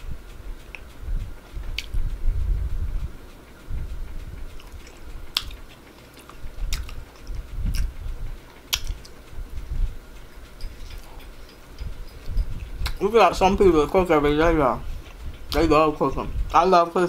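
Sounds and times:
person chewing a burger: 0:01.6 - 0:02.0, 0:04.4 - 0:09.3, 0:10.4 - 0:13.0.

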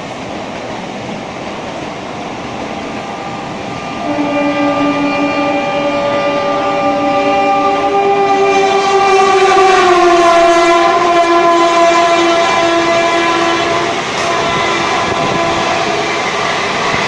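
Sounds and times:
train coaches rumbling past: 0:00.0 - 0:17.0
locomotive horn: 0:03.7 - 0:16.7.

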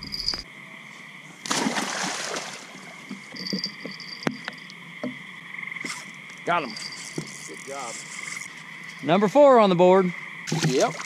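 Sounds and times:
insects and frogs chorus: 0:00.0 - 0:11.0
fish splashing in water: 0:01.5 - 0:03.0, 0:10.5 - 0:11.0.

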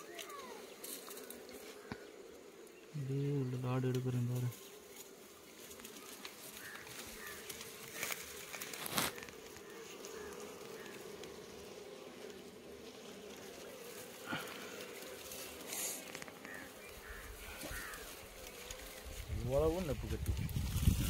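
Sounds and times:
bees buzzing: 0:00.0 - 0:21.0.

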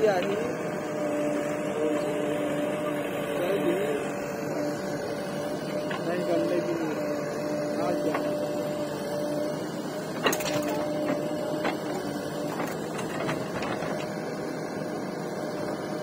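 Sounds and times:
diesel engines running: 0:00.0 - 0:16.0
held whine: 0:00.0 - 0:16.0.

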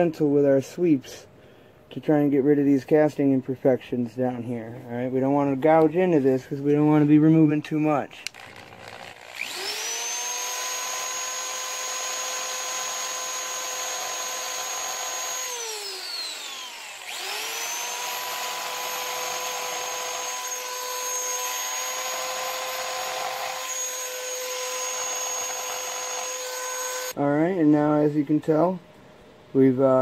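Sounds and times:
power tool grinding metal: 0:08.2 - 0:27.2.

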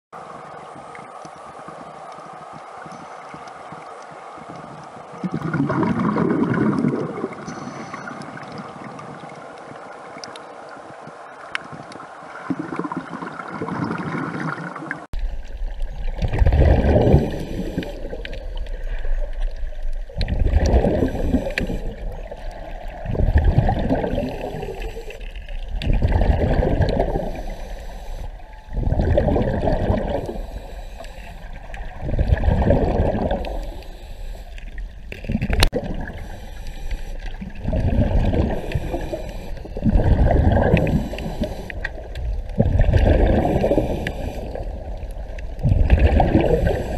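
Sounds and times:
underwater water noise: 0:00.1 - 0:46.9
diver exhaling bubbles underwater: 0:05.2 - 0:08.5, 0:12.4 - 0:15.1, 0:16.0 - 0:19.3, 0:20.1 - 0:27.7, 0:28.7 - 0:30.7, 0:31.5 - 0:33.8, 0:35.0 - 0:46.9.

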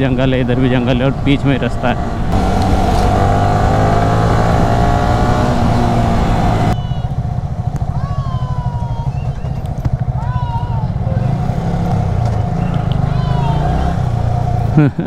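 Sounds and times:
motorcycle engine running: 0:00.0 - 0:15.0
drawn-out high call: 0:06.6 - 0:11.4, 0:12.5 - 0:14.1.

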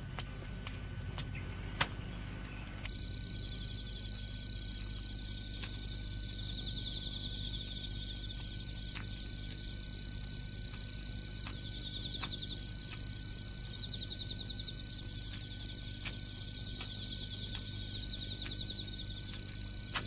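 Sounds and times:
low steady hum: 0:00.0 - 0:20.0
faint clicks: 0:10.6 - 0:13.1.

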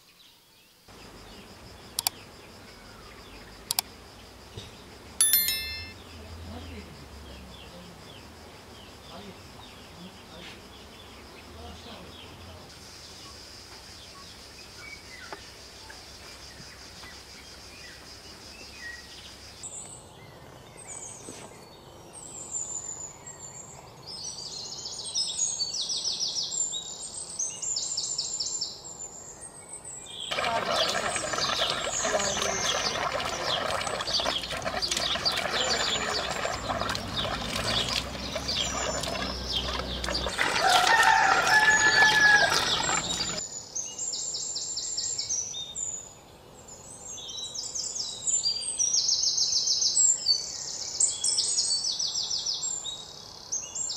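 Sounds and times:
birds singing trills: 0:14.0 - 0:53.9
chorus of bird calls: 0:30.2 - 0:43.4.

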